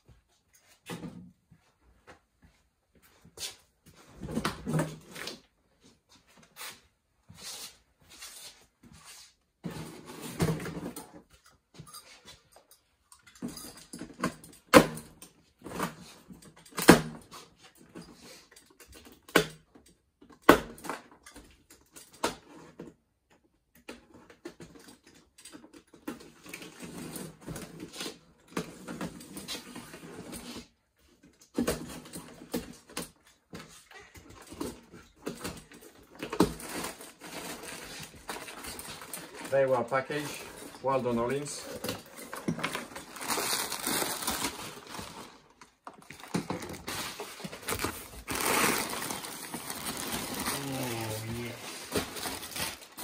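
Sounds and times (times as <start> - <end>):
cardboard rustling and scraping: 35.8 - 53.0.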